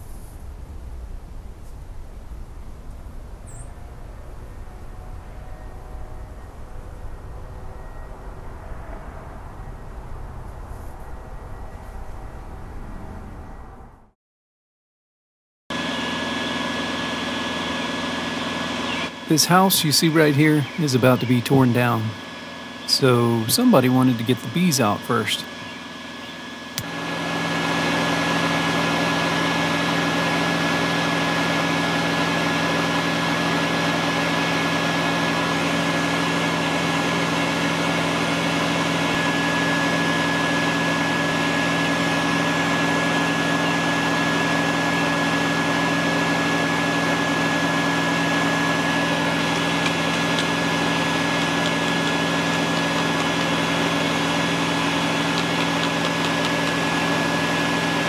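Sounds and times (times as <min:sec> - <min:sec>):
shop vacuum motor droning: 0:03.6 - 0:12.0, 0:15.7 - 0:58.0.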